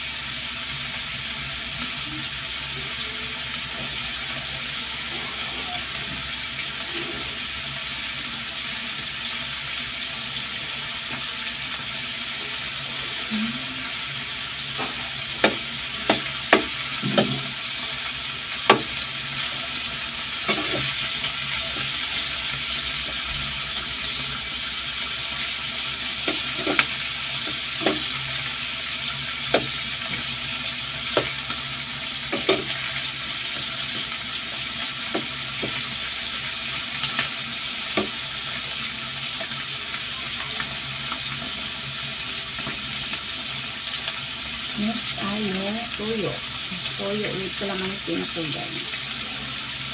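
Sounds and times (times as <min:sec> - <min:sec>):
chicken sizzling in a pan: 0:00.0 - 0:49.9
metal spatula scraping a pan: 0:20.3 - 0:22.5.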